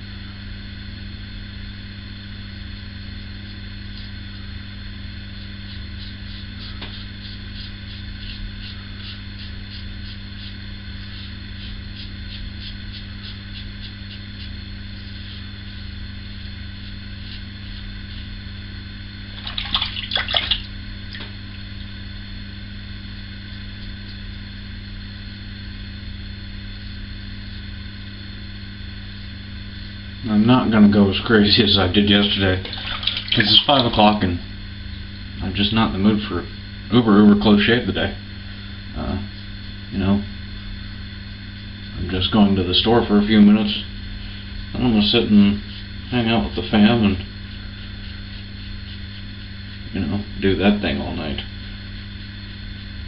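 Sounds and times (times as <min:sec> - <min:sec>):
steady low hum: 0:00.0 - 0:53.0
wet clicks of lather on face: 0:19.4 - 0:21.3, 0:32.6 - 0:33.9.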